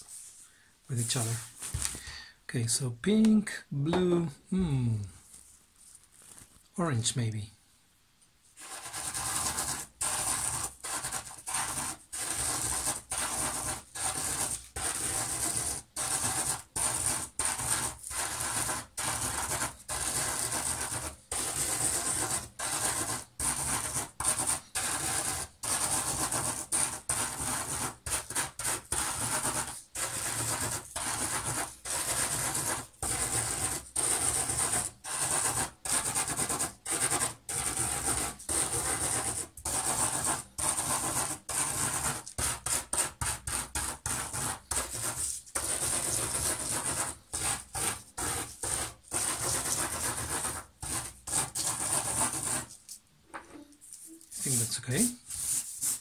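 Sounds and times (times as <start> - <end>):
chalk grinding into salt: 8.6 - 52.9.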